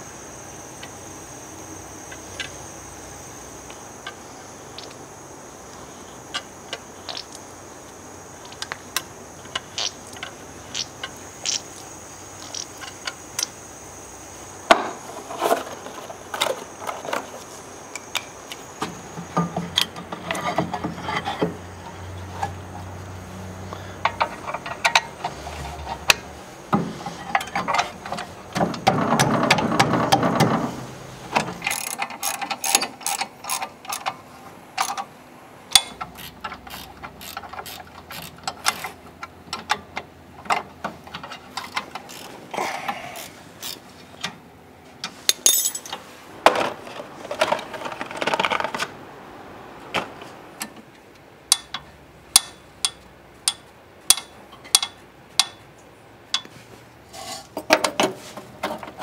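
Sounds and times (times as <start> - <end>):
hand tools clicking and clattering: 24.0 - 30.7, 31.3 - 34.2, 45.0 - 48.9, 51.5 - 55.6.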